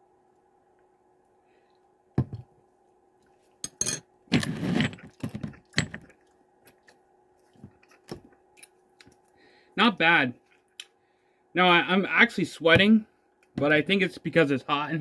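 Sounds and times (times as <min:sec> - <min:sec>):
bottle knock: 0:02.2 - 0:02.4.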